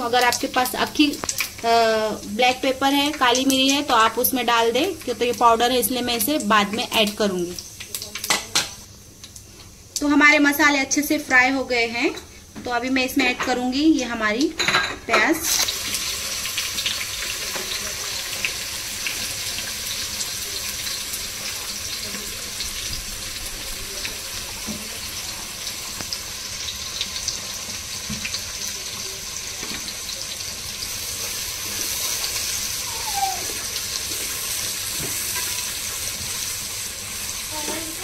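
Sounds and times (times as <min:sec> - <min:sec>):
onions sizzling in oil: 0:00.0 - 0:38.0.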